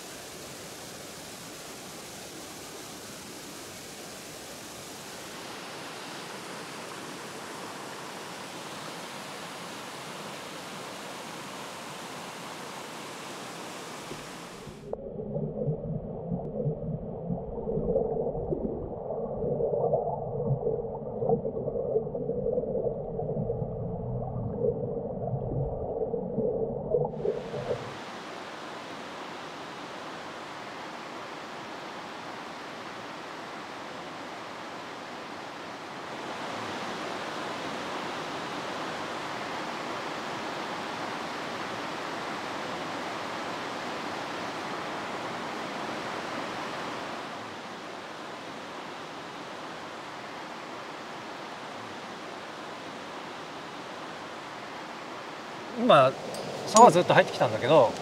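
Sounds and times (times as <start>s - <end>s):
mountain stream rushing: 0.0s - 14.9s, 27.1s - 58.0s
muffled churning water: 0.0s - 58.0s.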